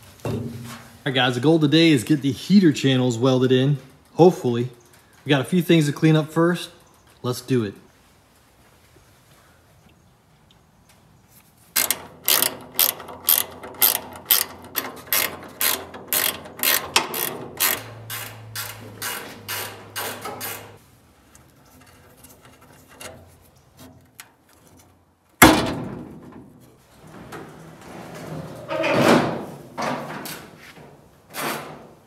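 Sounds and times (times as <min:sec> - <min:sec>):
ratcheting wrench clicking: 0:11.8 - 0:20.8
sharp metal clunk: 0:25.4 - 0:26.5.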